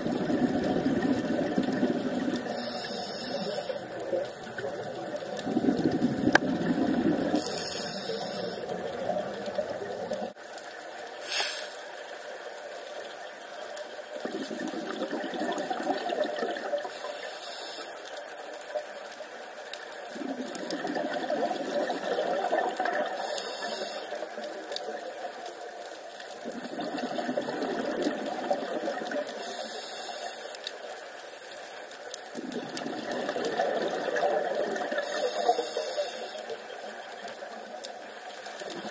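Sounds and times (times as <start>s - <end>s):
exhaled bubbles burbling: 0.0s - 10.4s, 14.0s - 17.0s, 20.0s - 29.6s, 32.1s - 38.9s
regulator inhale hiss: 2.4s - 4.0s, 7.3s - 8.8s, 11.2s - 11.8s, 16.9s - 18.1s, 23.2s - 24.3s, 29.4s - 30.7s, 35.0s - 36.6s.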